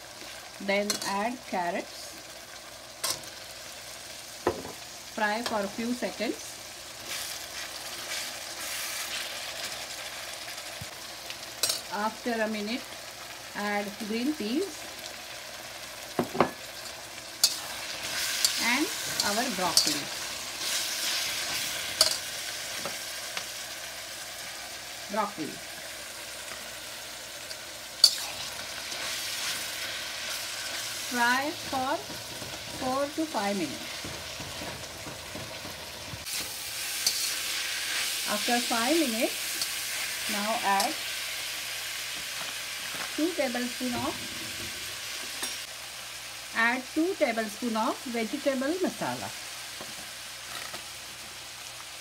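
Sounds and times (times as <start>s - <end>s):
vegetables sizzling in oil: 0.0s - 52.0s
metal spatula scraping pan: 37.0s - 38.1s.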